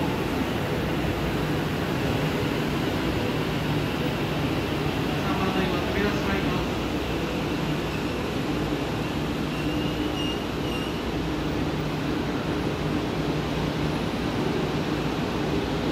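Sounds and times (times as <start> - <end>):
electric train rolling: 0.0 - 15.9
high brake squeal: 9.0 - 11.2.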